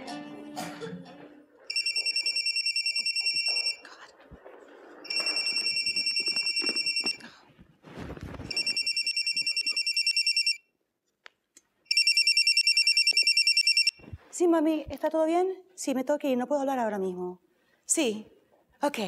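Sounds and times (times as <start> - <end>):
telephone ringing electronic trill: 1.7 - 3.8, 5.1 - 7.2, 8.5 - 10.6, 11.9 - 14.0.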